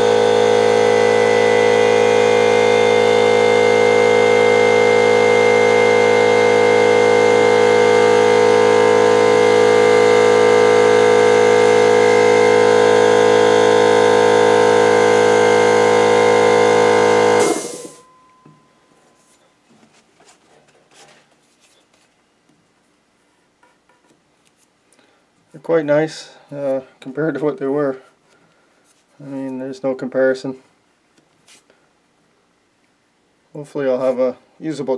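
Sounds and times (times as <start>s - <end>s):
lathe and grinder whine: 0.0s - 18.1s.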